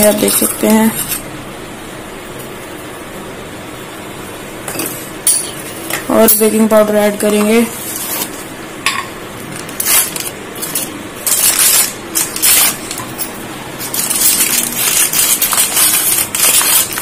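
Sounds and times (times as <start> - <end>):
rustling and scraping: 7.6 - 8.6.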